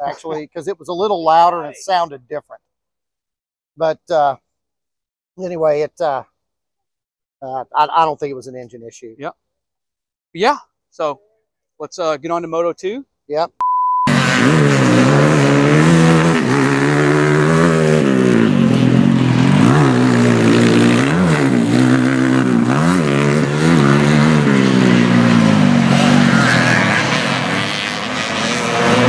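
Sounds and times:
dirt bike engine revving hard: 14.1 - 29.0.

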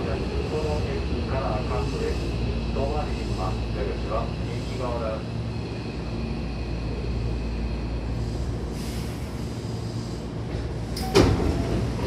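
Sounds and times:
train car low hum: 0.0 - 12.0
hiss of air: 7.8 - 11.1.

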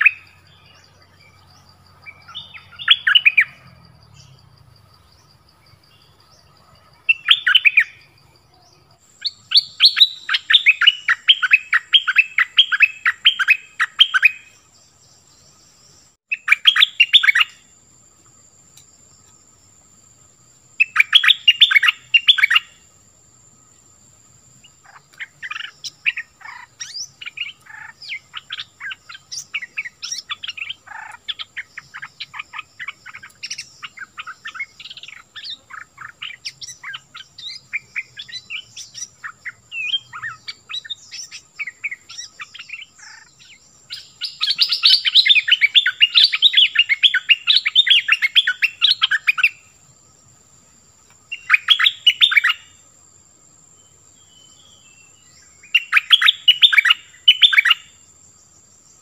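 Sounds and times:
bird singing chattering notes: 0.0 - 17.7, 20.8 - 22.8, 24.6 - 49.6
faint steady high whine: 0.0 - 59.0.

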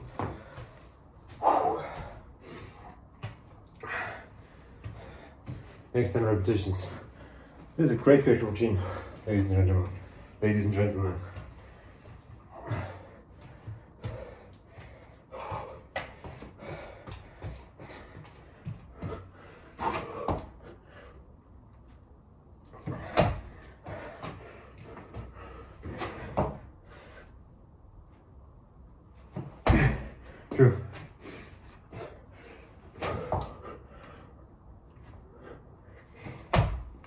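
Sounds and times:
thuds and slaps on exercise mat: 18.6 - 20.6, 22.8 - 24.4, 25.0 - 26.7, 29.3 - 31.1, 32.9 - 33.6, 36.2 - 37.0.

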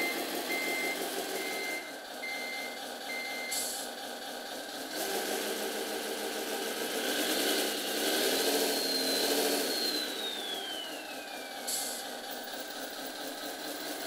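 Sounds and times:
simulated truck engine idling: 0.0 - 14.0
high whistle sliding down: 8.7 - 11.9.

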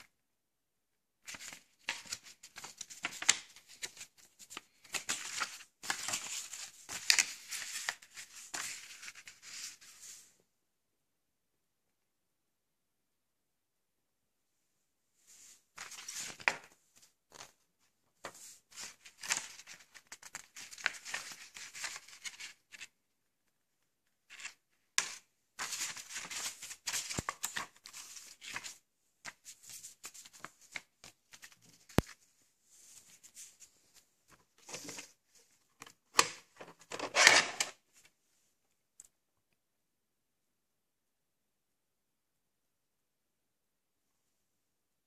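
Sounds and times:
paper leaflets rustling: 1.2 - 10.3, 15.4 - 17.6, 18.2 - 23.0, 24.2 - 38.1.

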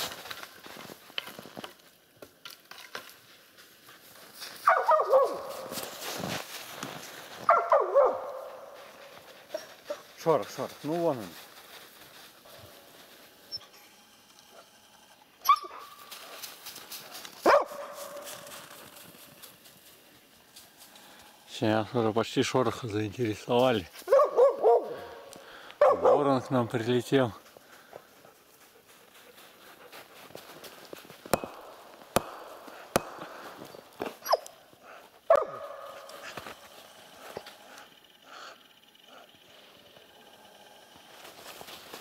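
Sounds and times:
sharp knocks: 31.2 - 34.1.

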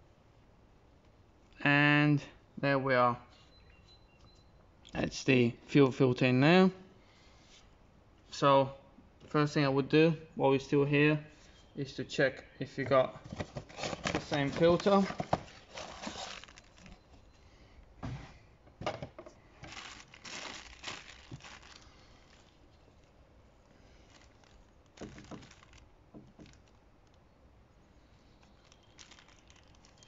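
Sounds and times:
packaging rustling and crinkling: 13.2 - 17.3, 19.2 - 27.2, 28.4 - 30.0.

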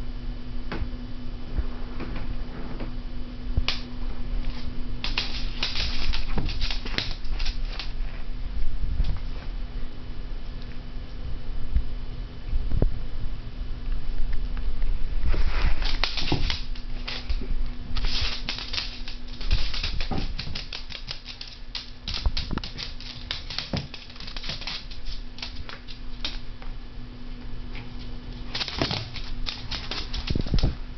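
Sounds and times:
faint steady hum: 0.0 - 30.9
dog claws scrabbling: 4.5 - 8.0, 15.7 - 17.4, 18.0 - 26.4, 27.8 - 30.8.

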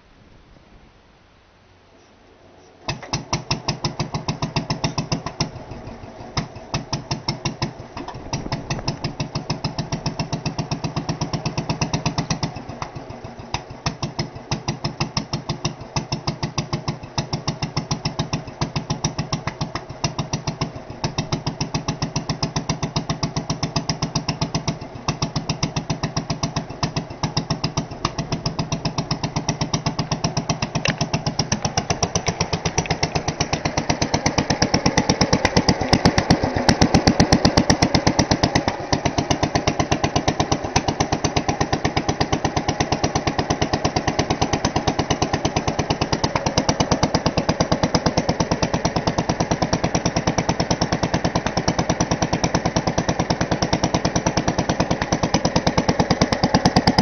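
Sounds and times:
stationary engine running: 3.0 - 57.0
hand cranking engine: 17.2 - 57.0.

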